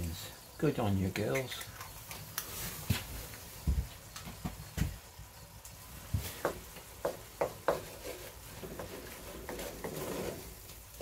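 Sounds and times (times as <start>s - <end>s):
wooden spatula scraping pot: 6.2s - 10.7s.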